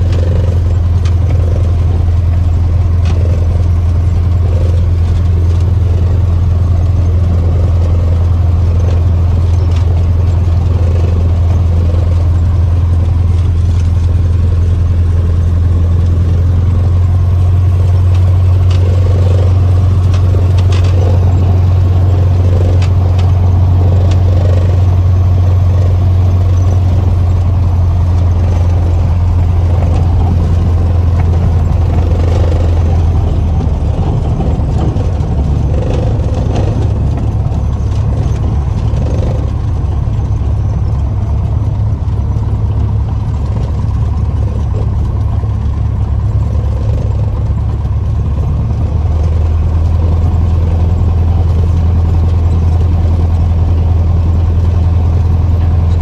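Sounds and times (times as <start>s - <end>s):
small plane engine droning: 0.0s - 56.0s
faint clicks: 22.3s - 23.4s.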